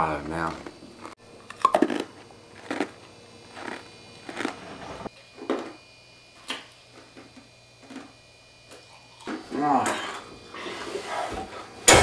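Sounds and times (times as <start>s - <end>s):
ice cubes crunched by teeth: 1.5s - 4.6s.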